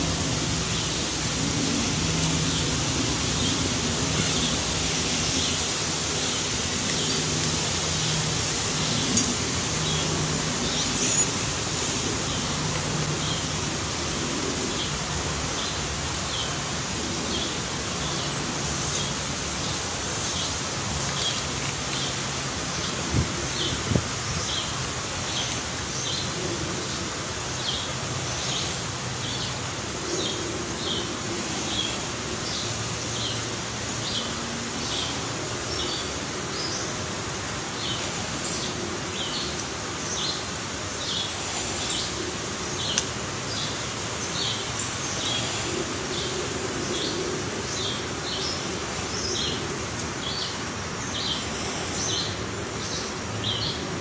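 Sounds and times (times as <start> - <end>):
steady hiss: 0.0 - 54.0.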